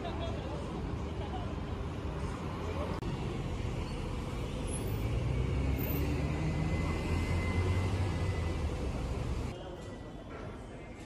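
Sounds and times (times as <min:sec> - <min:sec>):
bus engine rumbling: 0:00.0 - 0:09.5.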